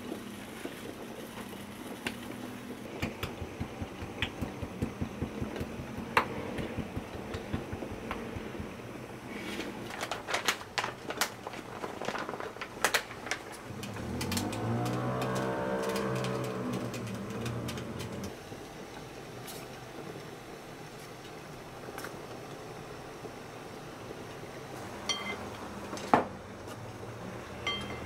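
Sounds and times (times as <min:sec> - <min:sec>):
powder pouring onto metal tray: 0:09.2 - 0:18.3
bag crinkling: 0:09.3 - 0:18.3.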